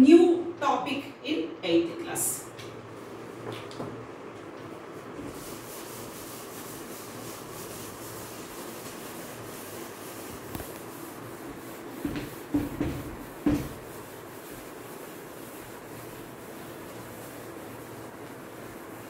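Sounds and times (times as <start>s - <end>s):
eraser rubbing on whiteboard: 5.2s - 19.0s.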